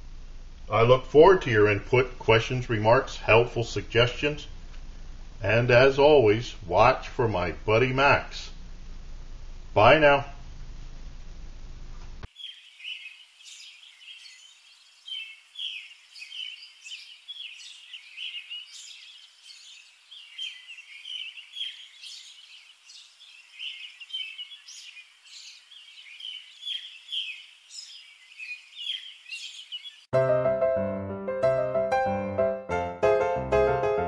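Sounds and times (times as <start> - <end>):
birds chirping: 12.2 - 30.1.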